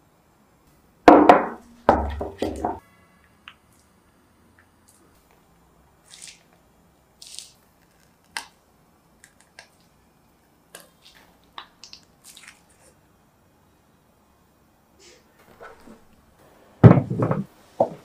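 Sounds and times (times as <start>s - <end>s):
soft squishes: 6.0s - 6.6s, 9.2s - 13.0s.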